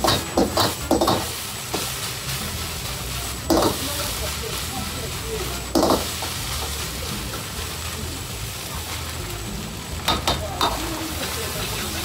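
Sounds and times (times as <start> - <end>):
metal ladle striking wok: 0.0 - 2.0, 3.5 - 4.0, 5.7 - 6.8, 10.0 - 12.0
gas burner roaring: 0.0 - 12.0
rice sizzling in a wok: 0.0 - 12.0.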